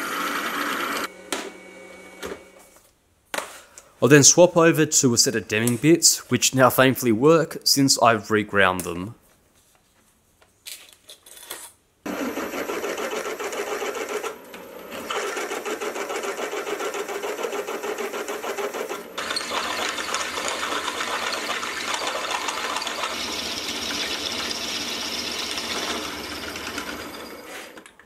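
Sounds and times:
drill bit cutting through steel: 0:19.2 - 0:27.4.

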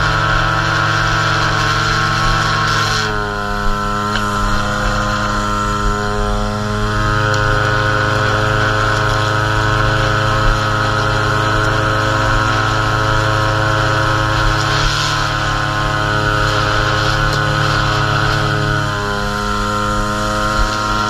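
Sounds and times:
string trimmer engine running: 0:00.0 - 0:21.0
trimmer line edging grass: 0:00.0 - 0:21.0.

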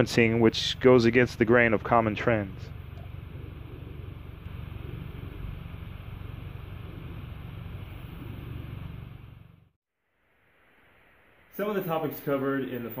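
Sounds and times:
low rumble: 0:00.0 - 0:09.8
faint hiss: 0:02.5 - 0:13.0.

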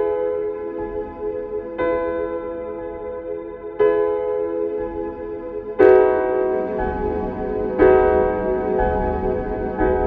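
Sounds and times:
ambient meditation music: 0:00.0 - 0:10.0.

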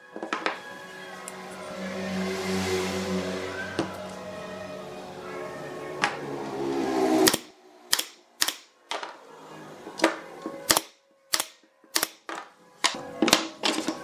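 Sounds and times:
nail gun shots: 0:07.2 - 0:08.7, 0:10.6 - 0:12.4.

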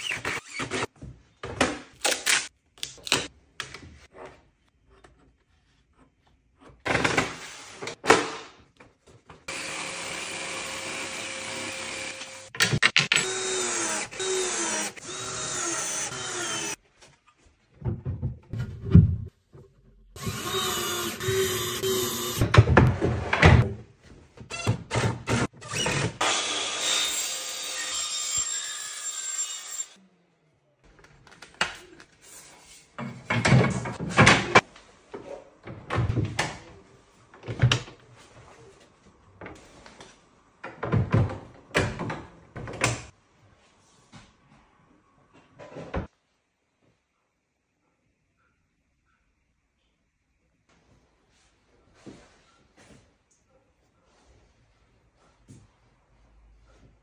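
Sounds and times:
power tool noise: 0:09.5 - 0:12.5.

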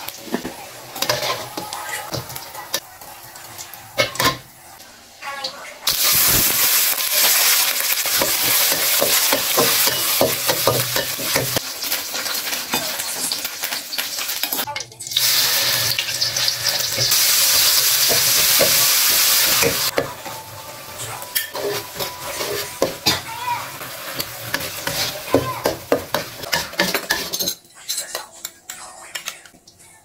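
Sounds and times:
food frying in hot oil: 0:00.0 - 0:27.1
chili paste sizzling: 0:00.0 - 0:27.5
metal spatula scraping pan: 0:00.3 - 0:02.3, 0:19.4 - 0:27.6.

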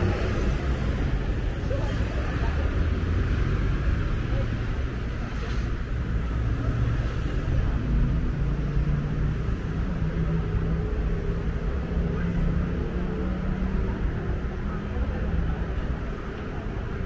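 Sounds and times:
car engines passing: 0:00.0 - 0:17.0.

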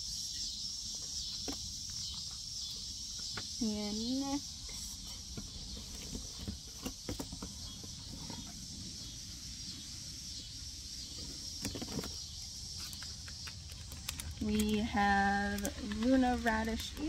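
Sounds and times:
cicadas droning: 0:00.0 - 0:17.0
plastic bag crinkling: 0:12.8 - 0:17.0.

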